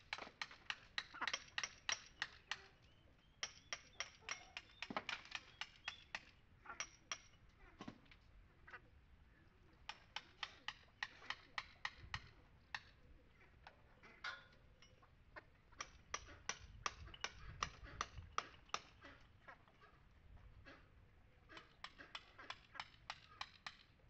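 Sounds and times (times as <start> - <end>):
hammer and chisel tapping stone: 0.1 - 2.7, 3.4 - 7.3, 9.9 - 12.9, 15.8 - 19.0, 21.8 - 24.0.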